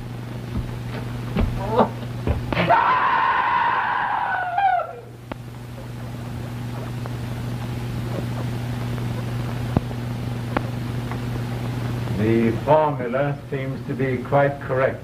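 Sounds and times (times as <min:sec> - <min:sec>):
low electrical hum: 0:00.0 - 0:15.0
gas hissing: 0:05.1 - 0:14.2.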